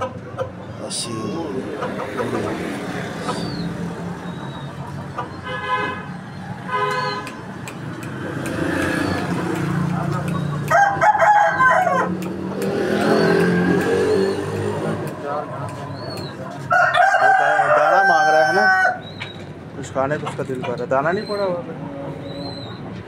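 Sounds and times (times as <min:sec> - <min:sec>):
small birds chirping: 0:00.3 - 0:10.7, 0:12.1 - 0:16.7, 0:18.6 - 0:23.0
rooster crowing: 0:10.6 - 0:12.2, 0:16.6 - 0:19.1.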